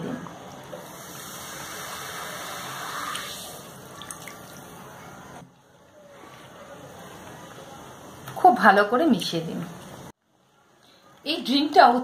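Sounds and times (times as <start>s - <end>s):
cola pouring and fizzing: 0.0s - 5.4s.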